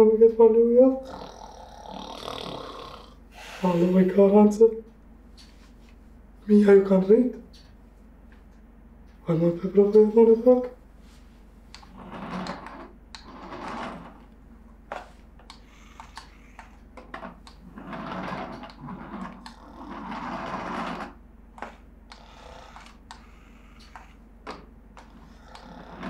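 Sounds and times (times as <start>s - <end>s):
toy car electric motor whirring: 15.5s - 16.8s, 22.1s - 24.2s, 25.0s - 26.0s.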